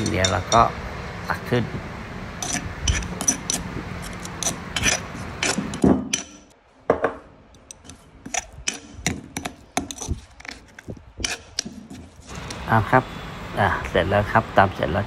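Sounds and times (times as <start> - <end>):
pestle knocking in mortar: 8.3 - 10.2.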